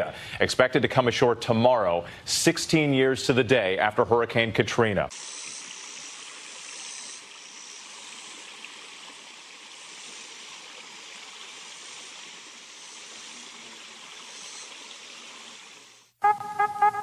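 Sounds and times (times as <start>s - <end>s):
creek water trickling over rocks: 5.1s - 16.2s.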